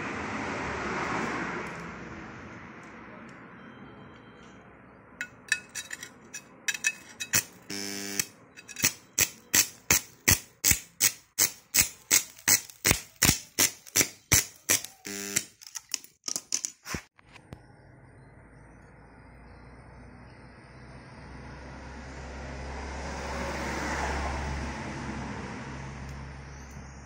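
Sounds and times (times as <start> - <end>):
short electric buzz: 7.7 - 8.3, 14.7 - 15.5
welding arc crackling in pulses: 11.4 - 15.5.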